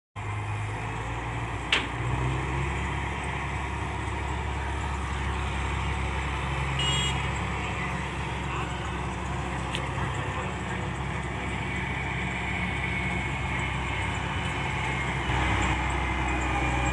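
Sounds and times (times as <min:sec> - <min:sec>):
combine harvester droning: 0:00.2 - 0:16.9.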